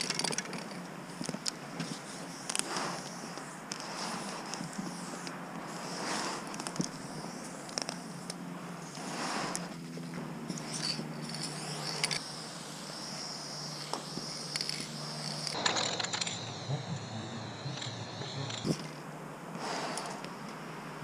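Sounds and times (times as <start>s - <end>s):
spray can hissing: 10.5s - 15.9s.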